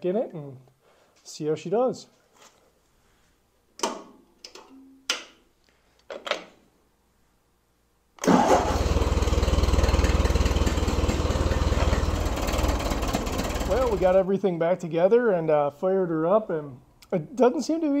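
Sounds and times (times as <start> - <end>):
tractor engine running: 8.3 - 14.2.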